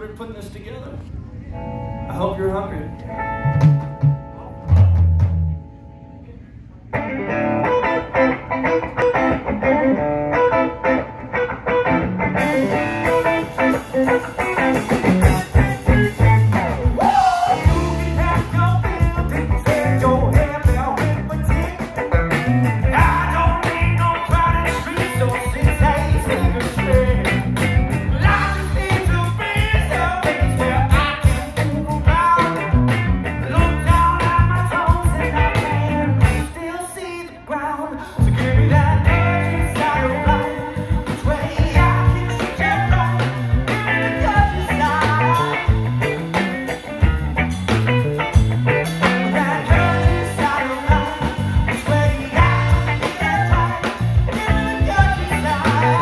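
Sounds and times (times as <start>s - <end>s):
drums: 2.2s - 56.0s
electric guitar: 2.8s - 56.0s
lead singer singing: 15.8s - 46.1s, 48.9s - 56.0s.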